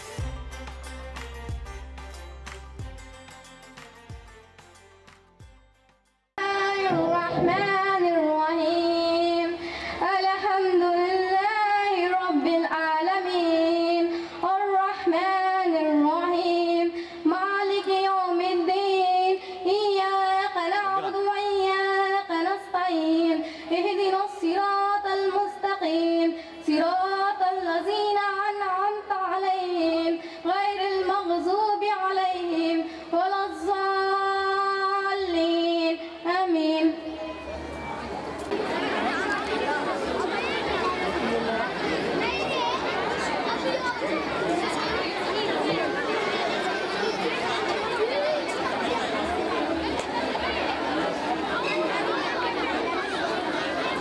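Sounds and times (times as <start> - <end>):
girl singing into microphone: 6.4 - 37.4.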